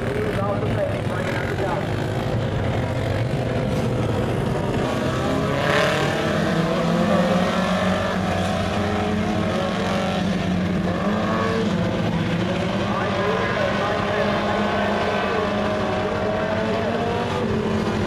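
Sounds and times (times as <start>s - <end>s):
race car engines: 0.0s - 18.0s.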